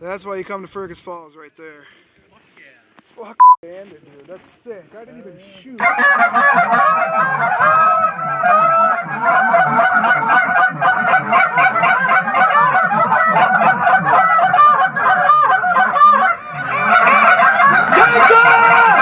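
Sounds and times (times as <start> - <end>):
geese honking and clucking: 5.8 - 19.0.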